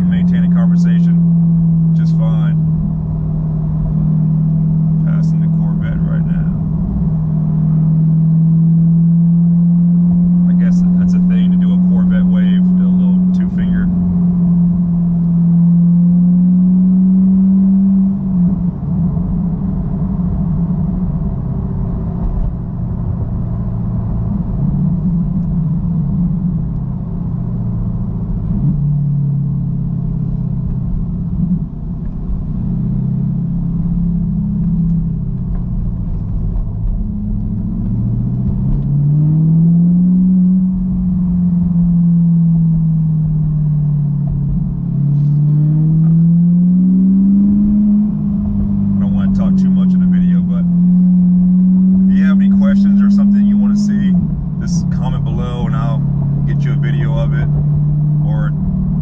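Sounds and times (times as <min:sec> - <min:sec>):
car exhaust drone: 0:00.0 - 0:59.0.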